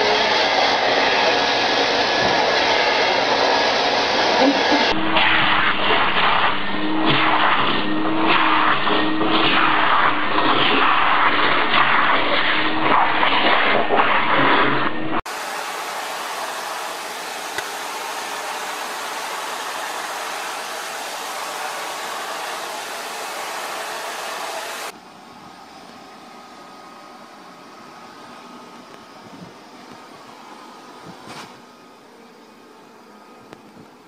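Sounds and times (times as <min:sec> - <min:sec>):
vacuum cleaner hissing: 0:00.0 - 0:34.0
handheld vacuum motor whine: 0:15.2 - 0:25.0.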